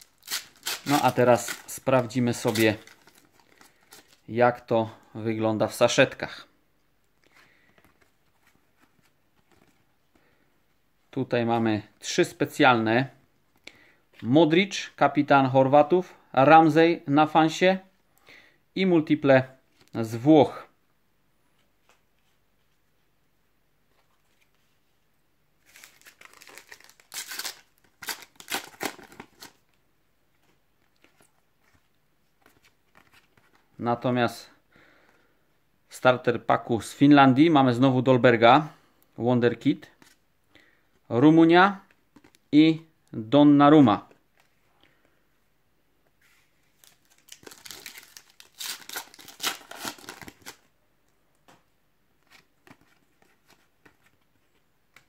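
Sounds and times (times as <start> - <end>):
foil packet tearing and crinkling: 0.0 - 4.2, 25.6 - 29.6, 46.8 - 50.6.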